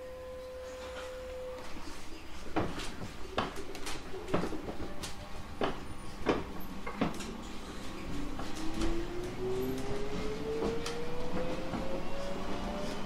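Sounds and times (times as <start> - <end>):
train knocks and clatter: 2.5 - 7.5, 8.3 - 13.0.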